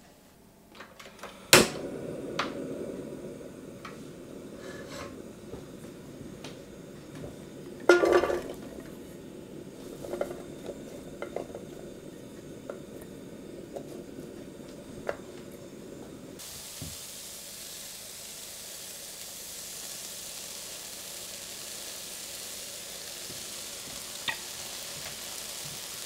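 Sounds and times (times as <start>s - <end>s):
burner low noise: 0.4s - 26.0s
stove switch click: 0.8s - 3.0s
pepper strips clattering into pan: 7.9s - 8.7s.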